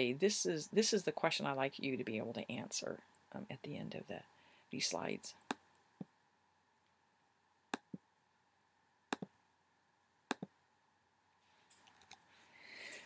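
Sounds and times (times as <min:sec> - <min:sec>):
computer mouse clicks: 0:09.1 - 0:09.3, 0:10.3 - 0:10.5.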